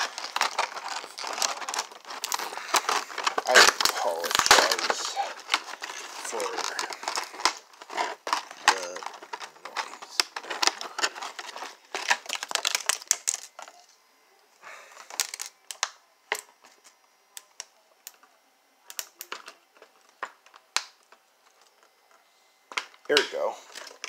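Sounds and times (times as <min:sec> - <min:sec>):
plastic packaging crinkling: 0:00.0 - 0:13.9, 0:14.7 - 0:17.7, 0:22.7 - 0:24.0.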